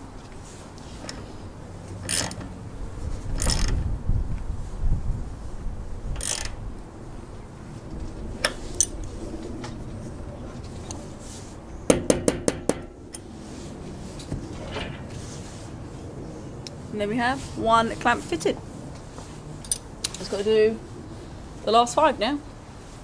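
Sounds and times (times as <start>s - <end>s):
sharp metallic ratchet clicks: 2.1s - 2.4s, 3.4s - 3.7s, 6.2s - 6.6s
socket ratchet clinking: 2.1s - 2.4s, 6.2s - 6.6s.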